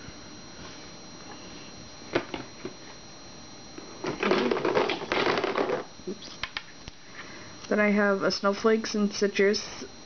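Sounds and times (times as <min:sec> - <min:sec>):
plastic rattling and rustling: 0:04.0 - 0:05.9.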